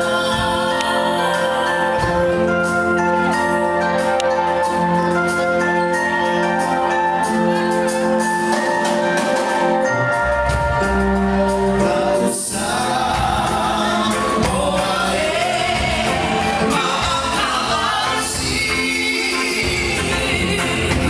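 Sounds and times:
live music: 0:00.0 - 0:21.0
voices singing together: 0:11.8 - 0:21.0.

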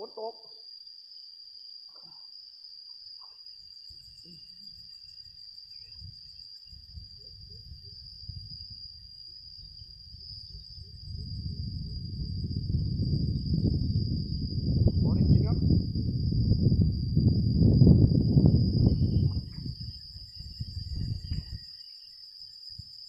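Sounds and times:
insects trilling: 0:00.0 - 0:23.0
low rumbling noise: 0:10.8 - 0:19.9.

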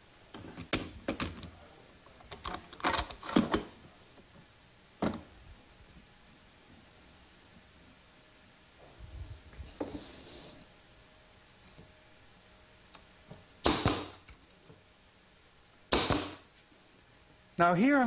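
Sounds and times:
nail gun firing with air hiss: 0:13.6 - 0:14.3, 0:15.9 - 0:16.5.

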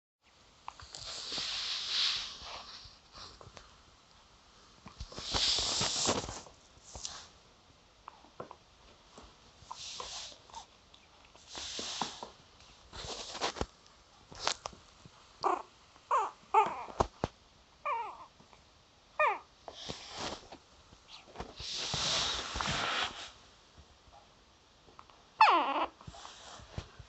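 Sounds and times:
puppy breathing and sniffing: 0:09.6 - 0:10.7.

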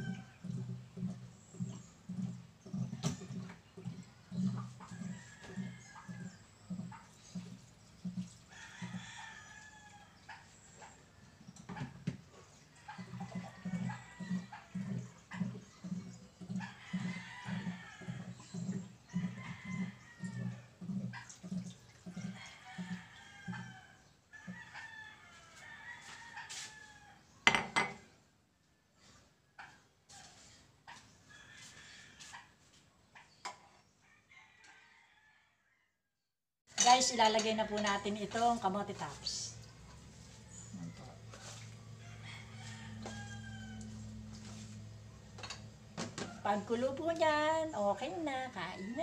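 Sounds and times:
rooster crowing: 0:12.9 - 0:15.0, 0:16.7 - 0:20.6, 0:22.2 - 0:27.6, 0:31.3 - 0:32.4, 0:34.1 - 0:35.9, 0:40.2 - 0:46.8.

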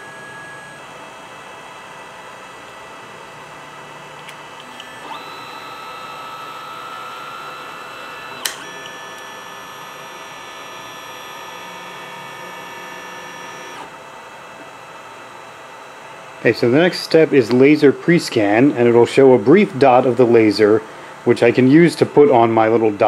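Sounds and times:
stepper motors whining: 0:04.6 - 0:13.9
sharp click: 0:08.4 - 0:09.3.

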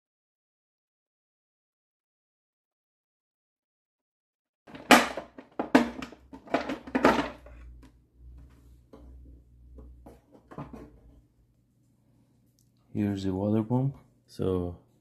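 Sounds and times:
plastic cover clacking: 0:04.7 - 0:07.5.

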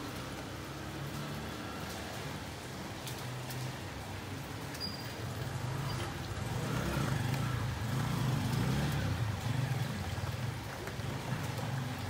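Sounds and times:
steady rain: 0:00.0 - 0:12.0
car engine passing: 0:05.2 - 0:12.0.

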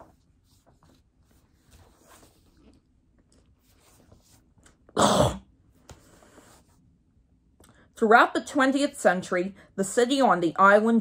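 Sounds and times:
page turning swish: 0:00.0 - 0:02.8
book pages rustling: 0:00.0 - 0:04.8.

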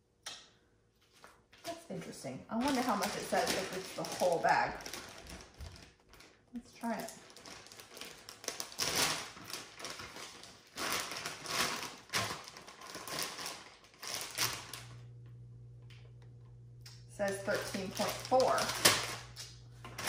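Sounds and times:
plastic packaging crinkling: 0:02.5 - 0:15.1, 0:17.3 - 0:20.0
low steady hum: 0:09.8 - 0:20.0.

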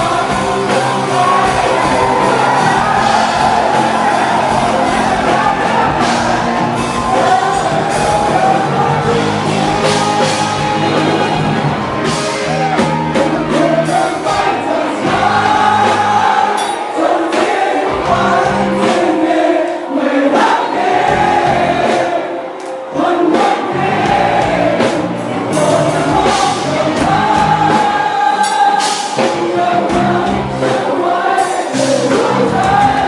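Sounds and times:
electric bass: 0:00.0 - 0:16.3, 0:29.6 - 0:30.7
crowd noise: 0:00.0 - 0:33.0
drums: 0:00.0 - 0:33.0
singing through microphones: 0:00.0 - 0:33.0.

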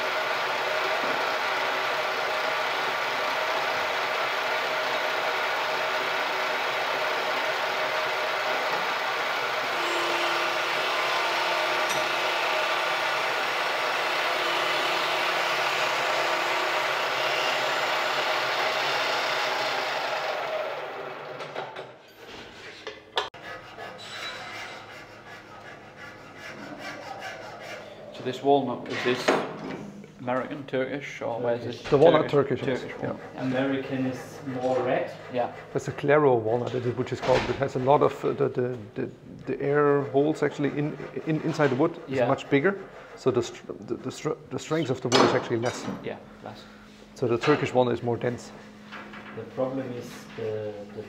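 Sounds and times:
milling machine whirring: 0:00.0 - 0:21.7
hand file scraping wood: 0:09.7 - 0:18.8, 0:23.4 - 0:28.2, 0:33.0 - 0:36.8, 0:39.5 - 0:43.8.

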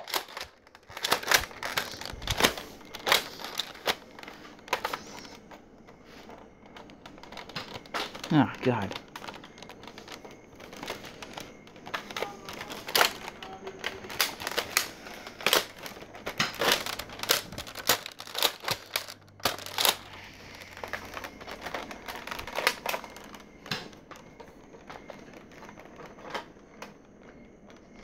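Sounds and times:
handling clicks and rustles: 0:00.0 - 0:28.0.

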